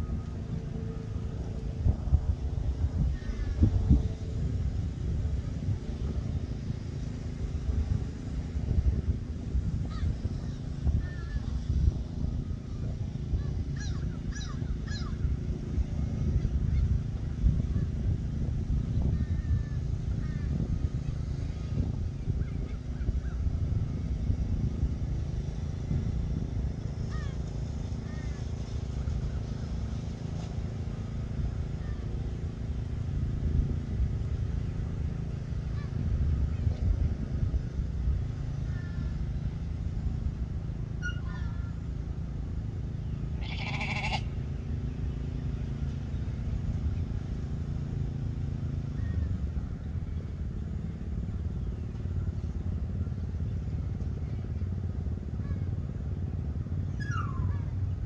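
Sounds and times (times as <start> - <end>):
low rumble: 0.0 - 58.0
sheep bleating: 43.4 - 44.3.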